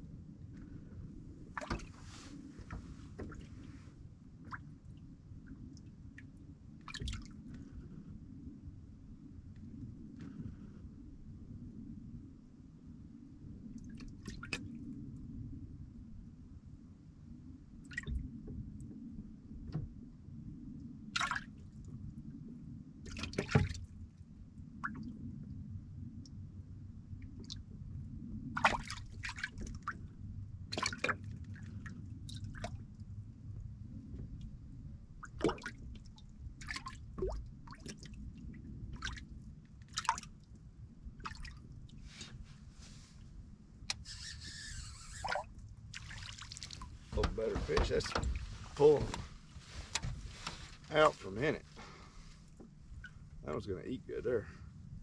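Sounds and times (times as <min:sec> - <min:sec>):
steady low rumble: 0:00.0 - 0:23.0, 0:23.8 - 0:55.0
water splashing against boat: 0:01.4 - 0:04.8, 0:06.8 - 0:07.6, 0:13.8 - 0:14.8, 0:21.2 - 0:21.7, 0:23.0 - 0:24.0, 0:28.5 - 0:33.1, 0:35.2 - 0:40.6, 0:41.2 - 0:54.2
water sloshing: 0:01.5 - 0:03.8, 0:28.6 - 0:30.1, 0:30.7 - 0:32.8, 0:35.2 - 0:38.2, 0:38.9 - 0:39.3, 0:39.9 - 0:40.4, 0:41.2 - 0:43.2, 0:43.9 - 0:53.5
water plops and drips: 0:01.6 - 0:01.9, 0:06.9 - 0:07.3, 0:21.2 - 0:21.5, 0:23.1 - 0:23.8, 0:28.6 - 0:30.0, 0:30.7 - 0:32.8, 0:35.2 - 0:38.2, 0:39.9 - 0:40.4, 0:41.2 - 0:41.6, 0:45.2 - 0:48.4.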